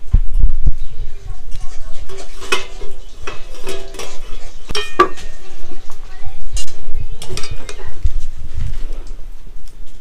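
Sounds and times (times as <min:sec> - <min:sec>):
metal utensils clinking in pot: 0:02.0 - 0:05.6.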